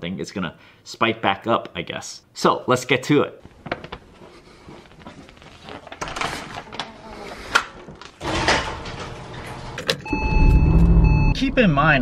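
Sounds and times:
paper rustling: 3.4s - 8.2s.

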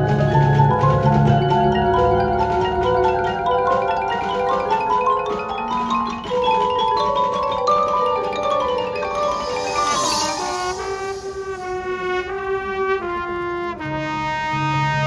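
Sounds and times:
marimba and glockenspiel runs: 0.0s - 11.8s.

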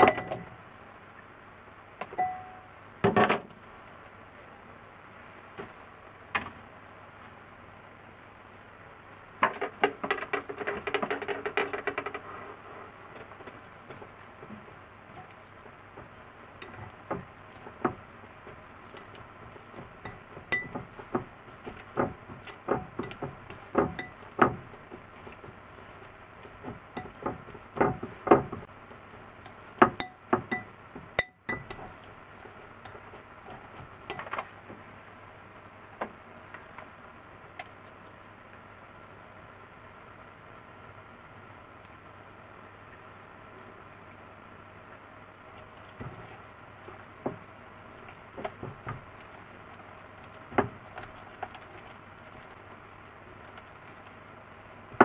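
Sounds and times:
utensil knocking glass bowl: 20.0s - 21.0s, 22.7s - 24.6s, 26.9s - 28.0s, 29.8s - 31.8s.

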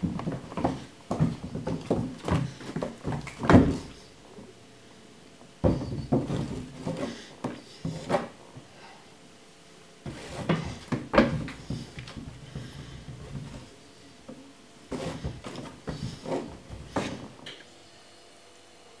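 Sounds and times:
hand patting floorboards: 0.0s - 4.0s, 5.6s - 8.4s, 10.1s - 13.7s, 14.9s - 17.4s
kitten paws thumping on wooden floor: 0.0s - 4.0s.

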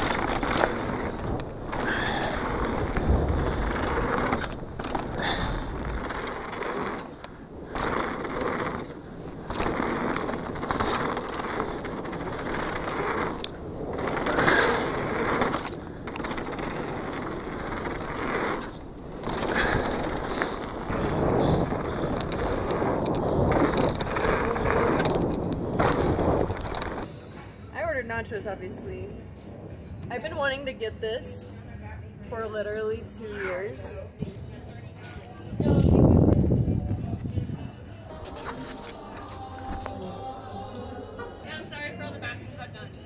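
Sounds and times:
wind rushing over microphone: 0.0s - 27.1s, 35.4s - 38.1s
tyres rolling over dirt and rock: 0.0s - 27.2s
bike rattling over bumps: 0.0s - 27.9s, 33.8s - 41.9s.

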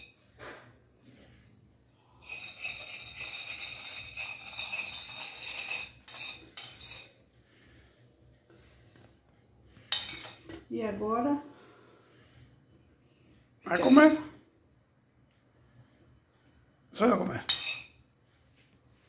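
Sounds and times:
utensil scraping a ceramic plate: 2.2s - 7.2s.

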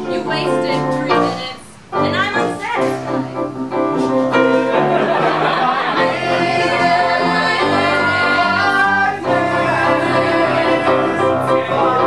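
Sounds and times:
piano accompaniment: 0.0s - 12.0s
people singing together: 4.4s - 12.0s.

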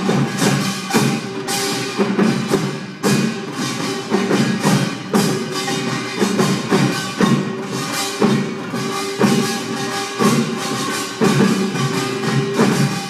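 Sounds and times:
drums and small gongs: 0.0s - 13.0s.

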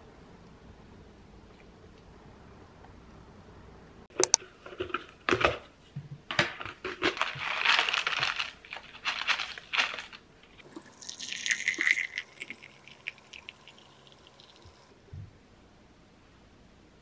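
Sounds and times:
foil pouch crinkling: 6.6s - 10.6s
tea leaves pattering into cup: 7.1s - 14.9s.

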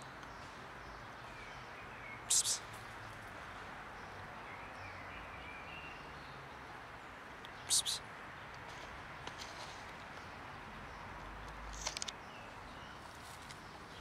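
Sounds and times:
outdoor background hiss: 0.0s - 14.0s
small animal chirping: 2.3s - 2.7s, 7.7s - 8.0s.

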